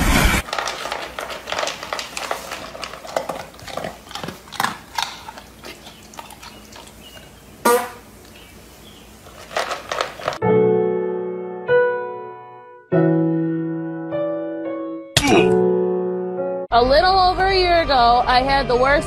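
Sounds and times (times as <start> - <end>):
dog crunching dry food: 0.4 - 7.6, 9.1 - 10.4.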